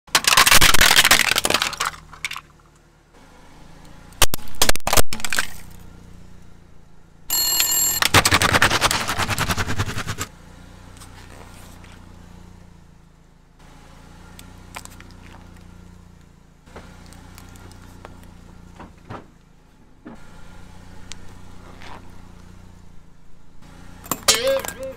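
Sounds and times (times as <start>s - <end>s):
plastic toys crunching under tire: 0.1s - 2.5s, 4.3s - 5.8s, 8.0s - 10.3s
toy telephone ringing: 7.3s - 8.1s.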